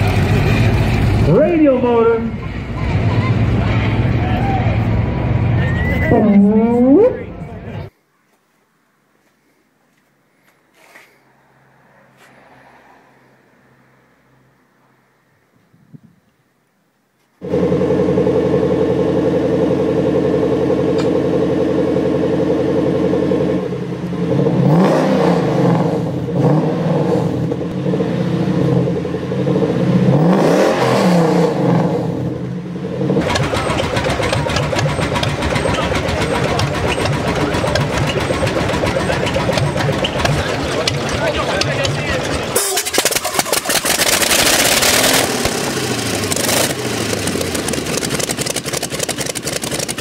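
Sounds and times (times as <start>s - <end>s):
car engine starting and revving: 17.4s - 50.0s
radial aircraft engine running: 33.2s - 50.0s.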